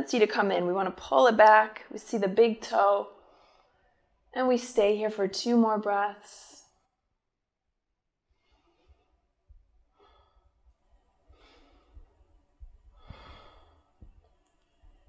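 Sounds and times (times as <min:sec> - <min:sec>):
woman breathing slowly: 0:03.1 - 0:04.3, 0:08.3 - 0:15.0
faint low bumps: 0:10.5 - 0:15.0.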